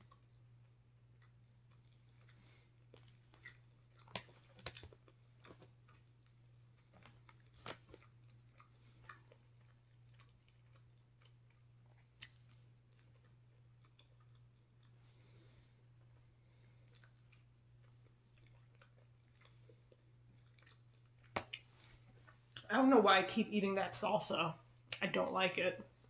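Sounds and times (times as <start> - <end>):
person chewing food: 0.0 - 22.6.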